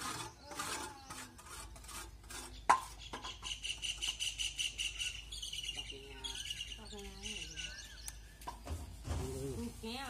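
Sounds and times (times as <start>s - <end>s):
bird chirping rapidly: 2.4s - 8.4s.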